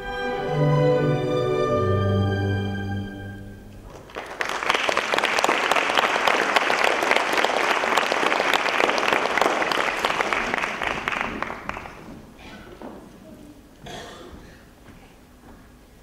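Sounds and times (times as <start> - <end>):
audience applauding: 3.8 - 12.4.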